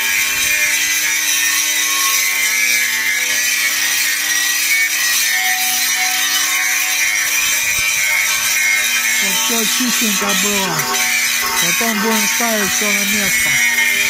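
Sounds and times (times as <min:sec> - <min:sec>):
angle grinder grinding metal: 0:00.0 - 0:14.0
motor hum: 0:05.4 - 0:14.0.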